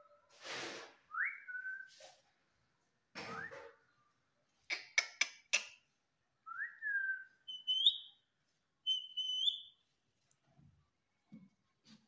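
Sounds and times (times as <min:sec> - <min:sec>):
parakeet whistling: 0:06.6 - 0:08.1, 0:08.9 - 0:09.7.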